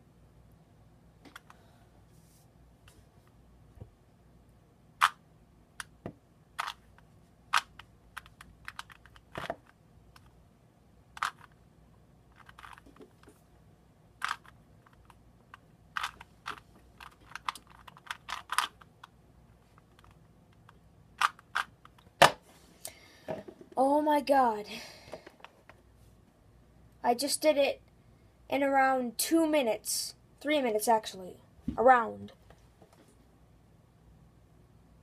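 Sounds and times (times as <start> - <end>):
puzzle cube plastic clicking: 5.0 - 5.2, 5.8 - 6.0, 6.6 - 10.3, 11.1 - 11.6, 12.3 - 13.3, 14.2 - 22.1.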